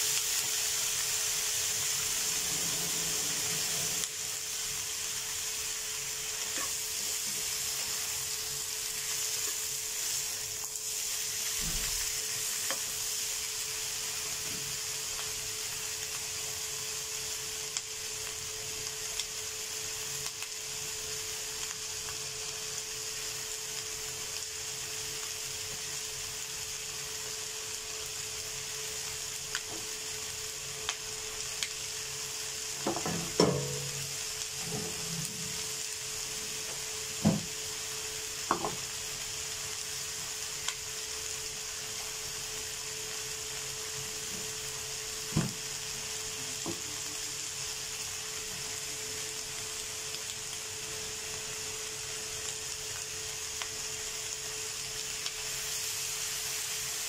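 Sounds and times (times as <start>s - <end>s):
food sizzling in a pan: 0.0s - 57.0s
pan and utensil knocks: 32.8s - 35.0s
steady hum: 32.8s - 36.5s.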